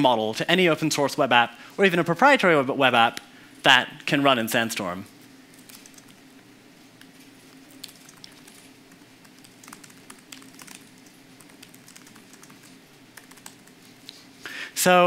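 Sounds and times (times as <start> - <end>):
low room hum: 0.0 - 15.0
laptop keyboard typing: 5.5 - 6.3, 7.5 - 14.0.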